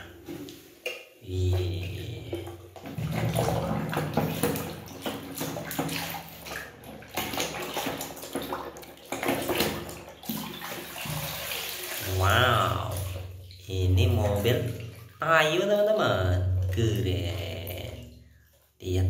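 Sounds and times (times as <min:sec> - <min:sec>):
hand splashing in water: 0:02.4 - 0:13.3.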